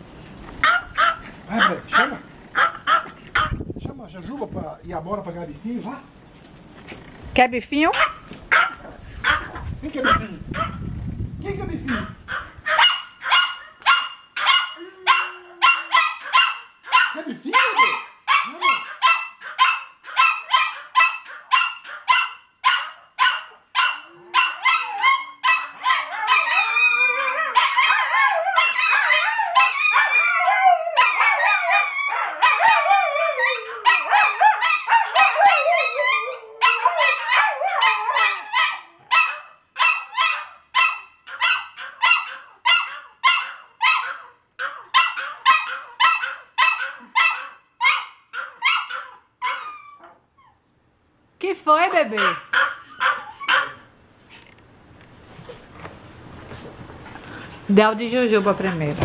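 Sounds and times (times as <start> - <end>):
small dogs barking: 0.6 - 3.6, 7.8 - 10.9, 11.9 - 50.2, 52.0 - 54.0
dogs howling: 12.3 - 50.7.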